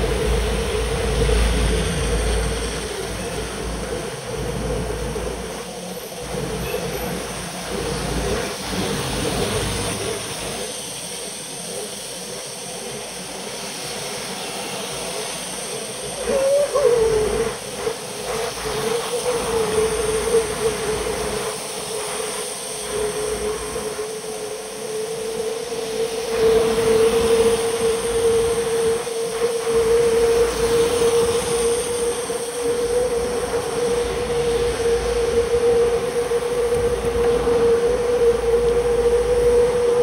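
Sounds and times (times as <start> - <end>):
tyres hissing on wet road: 0.0 - 40.0
wind rumble on microphone: 0.0 - 40.0
wavering hum: 14.8 - 40.0.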